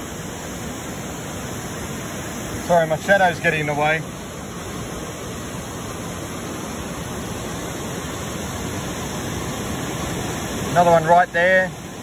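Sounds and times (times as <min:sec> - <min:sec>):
waterfall rushing: 0:00.0 - 0:12.0.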